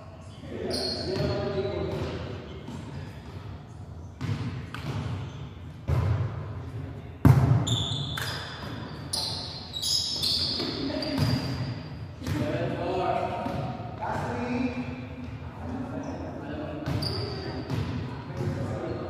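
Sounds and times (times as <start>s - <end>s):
sneakers squeaking on wooden floor: 0.5s - 3.2s, 4.0s - 6.1s, 7.3s - 12.4s, 16.0s - 18.0s
hands slapping volleyball: 8.2s - 8.4s.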